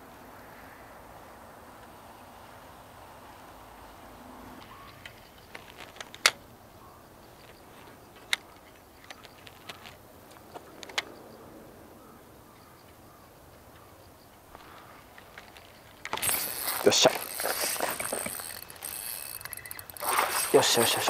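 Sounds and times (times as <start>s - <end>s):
fishing tackle clicking: 4.6s - 6.5s, 7.3s - 11.2s, 14.6s - 21.0s.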